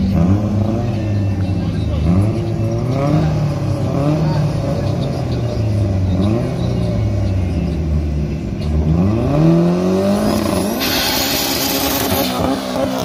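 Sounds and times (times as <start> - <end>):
car engine idling and revving: 0.0 - 13.0
loud hiss-like screech: 10.7 - 12.4.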